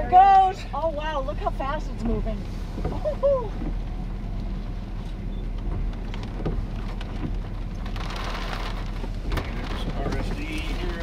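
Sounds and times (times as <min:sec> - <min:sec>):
rain pattering: 0:03.6 - 0:11.0.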